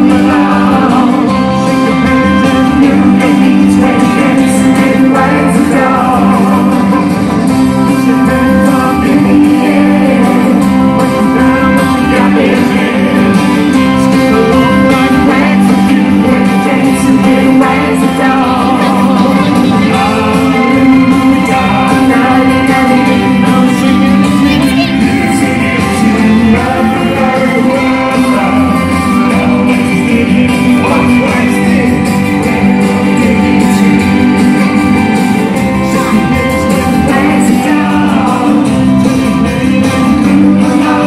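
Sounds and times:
live band through loudspeakers: 0.0s - 41.0s
person singing: 0.0s - 41.0s.

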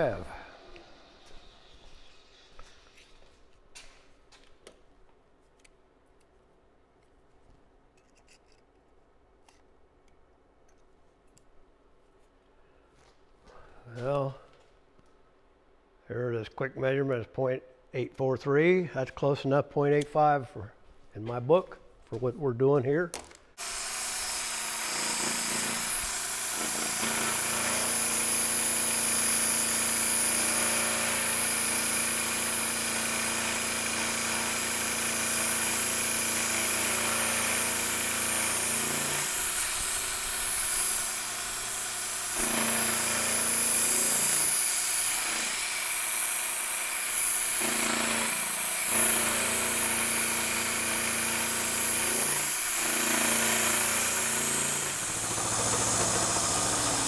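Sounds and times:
milling machine motor hum: 23.6s - 57.0s.

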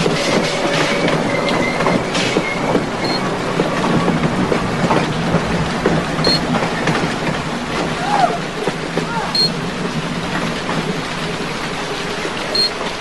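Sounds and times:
train wheel squeals: 0.0s - 3.4s, 6.2s - 6.5s, 9.3s - 9.6s, 12.5s - 12.9s
train rattling on tracks: 0.0s - 13.0s.

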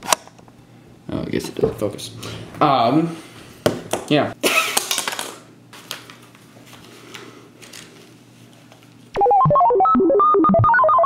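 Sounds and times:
fast electronic ringtone melody: 9.2s - 11.0s.

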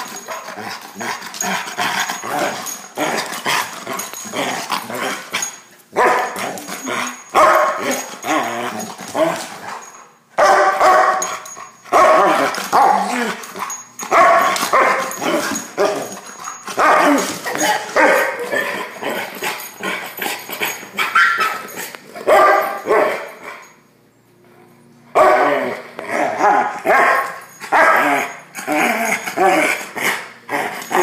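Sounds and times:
dog barking: 6.0s - 6.4s, 7.4s - 8.0s, 10.4s - 13.0s, 14.1s - 16.1s, 16.8s - 18.5s, 21.1s - 21.6s, 22.3s - 23.6s, 25.2s - 28.3s.

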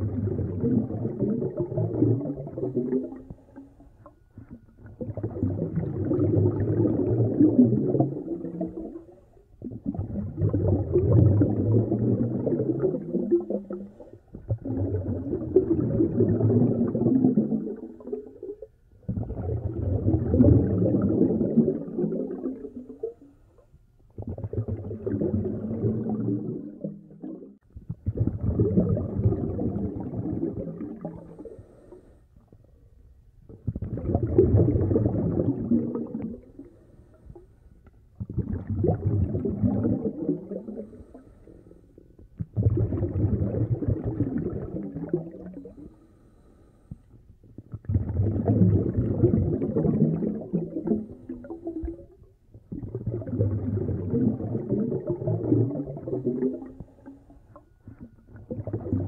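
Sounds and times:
bubbling: 0.0s - 32.7s, 33.4s - 46.1s, 47.4s - 59.0s
diver breathing through regulator: 31.2s - 32.3s, 40.6s - 42.0s, 45.6s - 47.1s.

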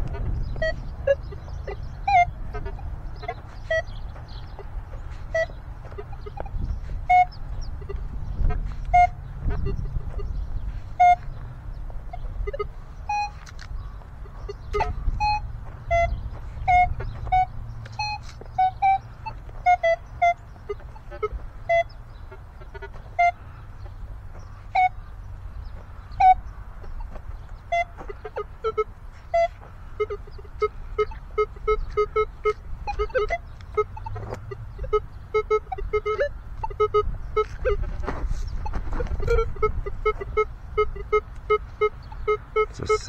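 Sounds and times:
metal detector beeps: 0.1s - 4.7s, 5.3s - 11.3s, 12.1s - 13.6s, 14.2s - 22.0s, 26.1s - 37.8s, 38.4s - 43.0s.

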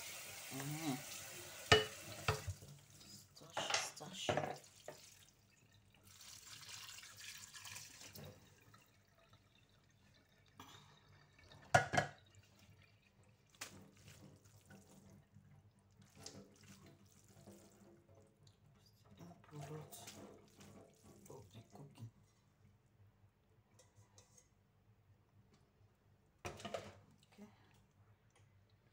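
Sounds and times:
water draining into metal sink: 0.0s - 21.7s.

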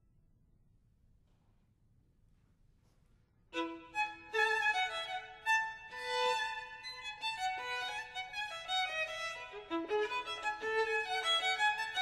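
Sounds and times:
violin melody: 3.6s - 12.0s.

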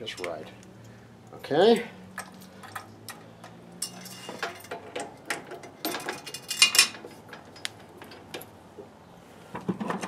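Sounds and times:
metal tools clinking: 1.4s - 8.3s.

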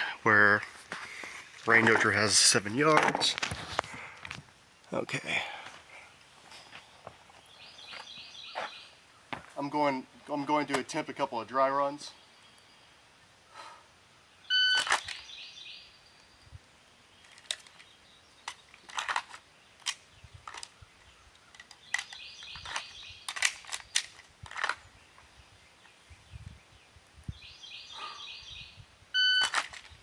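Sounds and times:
pistol clicks and clacks: 21.6s - 24.8s.

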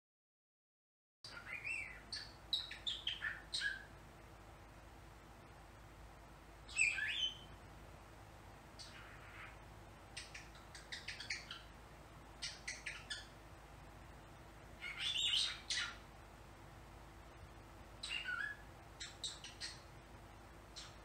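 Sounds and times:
cockatiel chirping and clicking: 1.3s - 3.9s, 10.2s - 11.7s, 12.4s - 13.3s, 14.8s - 16.0s, 18.0s - 19.8s, 20.8s - 21.0s.

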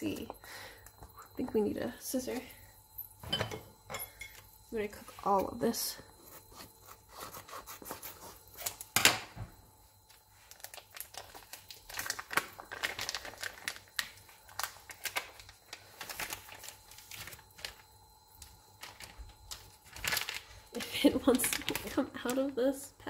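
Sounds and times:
plastic packaging crinkling and tearing: 10.1s - 17.9s, 18.7s - 22.6s.

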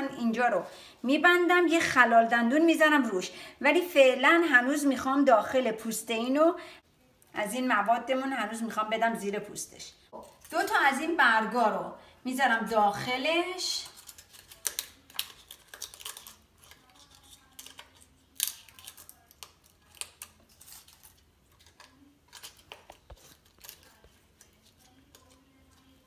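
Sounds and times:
aluminium foil pan crinkling: 13.5s - 26.0s.

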